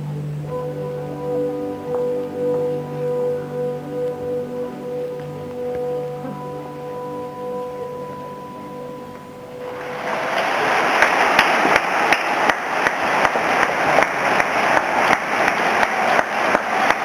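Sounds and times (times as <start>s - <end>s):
music: 0.0s - 10.4s
audience applauding: 9.7s - 17.0s.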